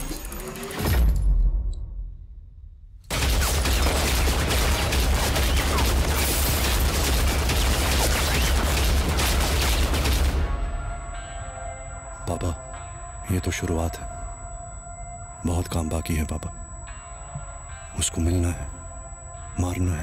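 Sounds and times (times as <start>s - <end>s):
rapid gunfire: 3.1s - 10.5s.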